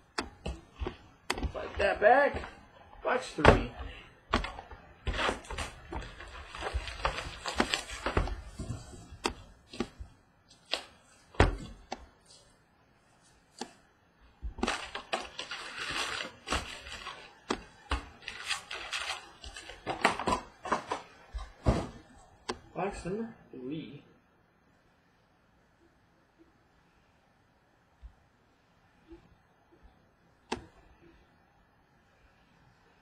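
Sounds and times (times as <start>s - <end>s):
foil packs rustling and crinkling: 0.8s - 9.2s, 14.6s - 21.1s.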